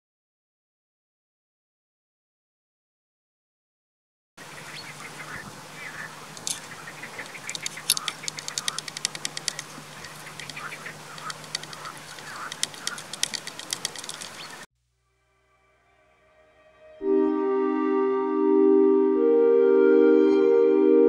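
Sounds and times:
animal calls: 4.4s - 14.7s
rapid sharp clicks: 6.3s - 14.7s.

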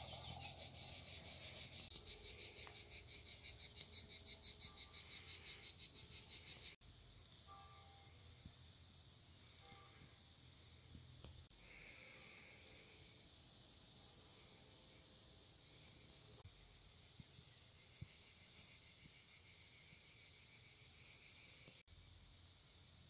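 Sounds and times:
faint high-pitched insect chirring: 0.0s - 23.0s.

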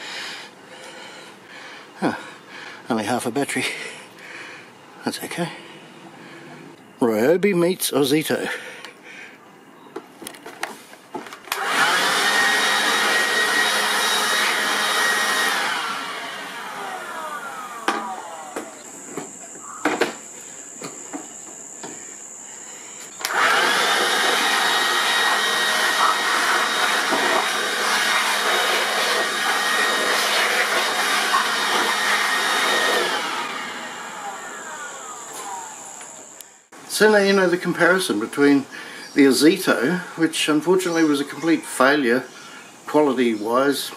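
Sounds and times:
leaf blower whining: 0.0s - 2.6s, 11.4s - 22.3s, 23.0s - 39.0s
fan spinning down: 11.5s - 19.4s, 23.2s - 36.7s.

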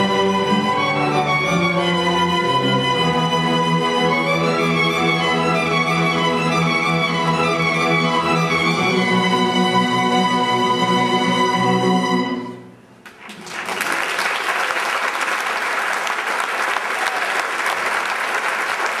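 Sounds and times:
audience applause: 13.1s - 19.0s.

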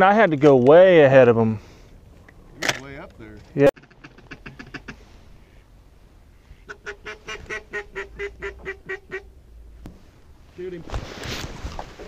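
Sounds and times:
goose honking: 3.8s - 9.4s.

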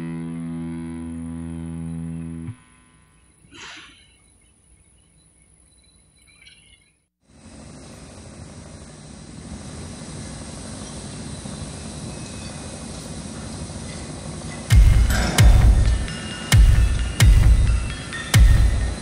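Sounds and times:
steady rumbling noise: 7.3s - 19.0s.

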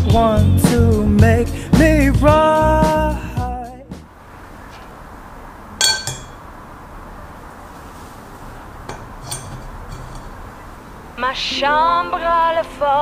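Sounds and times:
metal strainer clinking on glass bowl: 5.8s - 6.5s, 8.9s - 10.4s.

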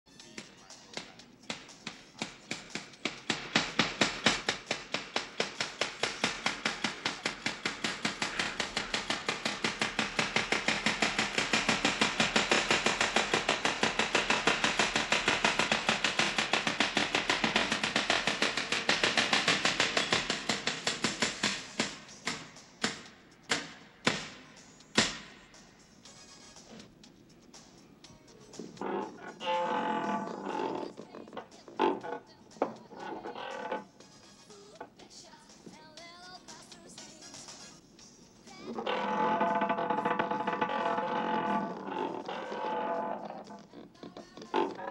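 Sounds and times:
fast sharp clicks: 1.0s - 25.3s.

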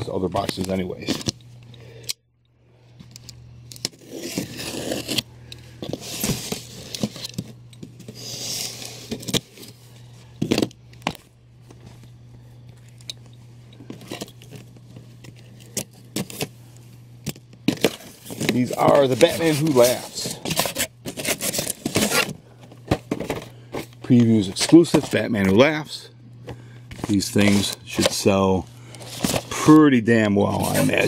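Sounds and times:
boxes being handled: 3.0s - 25.7s, 26.4s - 31.0s.

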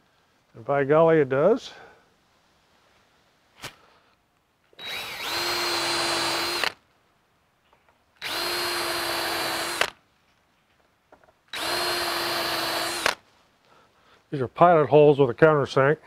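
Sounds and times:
cordless drill whine: 4.8s - 6.8s, 8.2s - 10.0s, 11.5s - 13.2s.

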